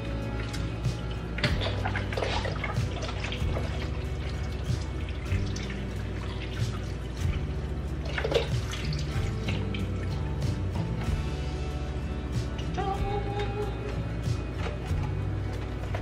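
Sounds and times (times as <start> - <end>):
broth pouring: 0.0 - 12.7
background music: 0.0 - 16.0.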